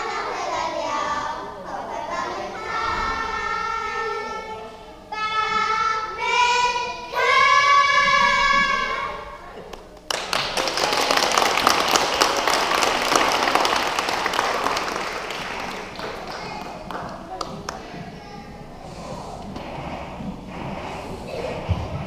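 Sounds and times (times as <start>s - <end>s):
children singing: 0.0s - 9.6s
audience applause: 10.1s - 17.9s.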